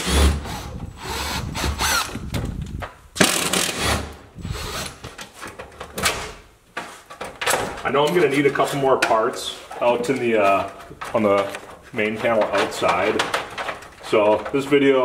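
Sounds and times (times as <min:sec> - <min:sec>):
power drill running: 0:00.0 - 0:02.2.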